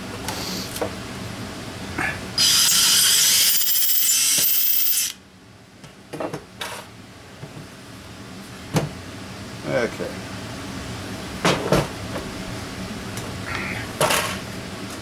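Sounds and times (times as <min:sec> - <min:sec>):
power drill whirring into metal: 0:02.4 - 0:05.2.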